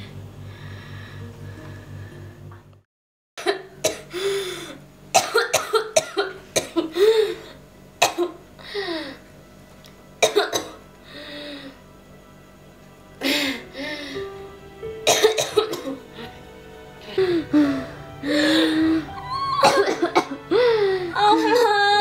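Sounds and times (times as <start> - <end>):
woman coughing: 3.4 - 4.1, 5.2 - 7.0, 8.0 - 8.4, 10.2 - 10.8, 15.1 - 16.0, 19.6 - 20.5
woman groaning: 18.6 - 22.0.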